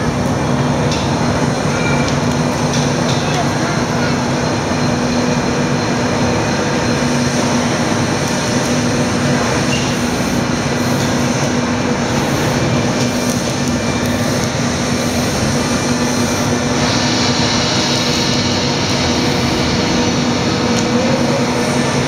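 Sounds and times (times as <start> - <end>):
gas flame rushing: 6.4 - 22.0.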